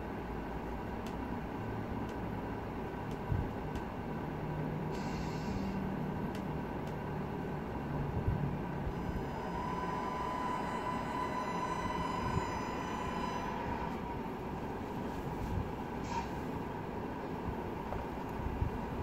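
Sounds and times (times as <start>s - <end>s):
electric motor whine: 8.9s - 14.3s.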